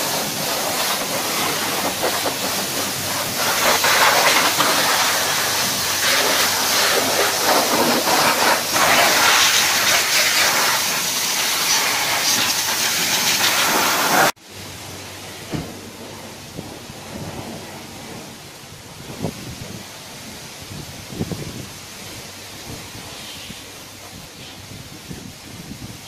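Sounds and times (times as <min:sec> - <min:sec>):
spray wand hissing: 0:00.0 - 0:14.3.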